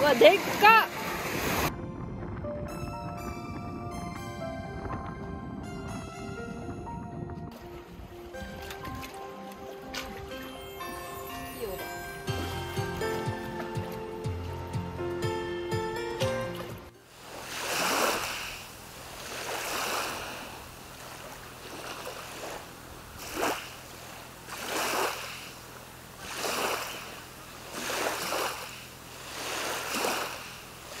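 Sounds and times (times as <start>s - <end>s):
small waves washing in: 0.0s - 1.8s, 16.4s - 31.0s.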